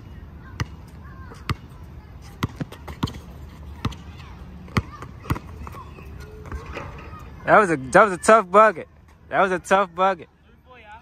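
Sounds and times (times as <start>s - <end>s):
basketball bouncing on hard court: 2.4s - 4.0s, 4.7s - 5.8s.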